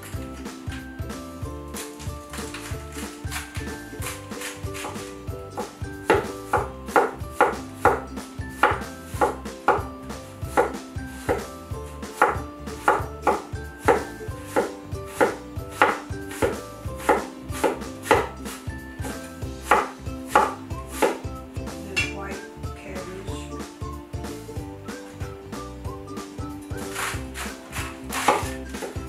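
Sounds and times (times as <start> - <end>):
faint music: 0.0 - 29.0
knife chopping on wooden board: 1.7 - 9.9, 10.5 - 21.3, 26.7 - 29.0.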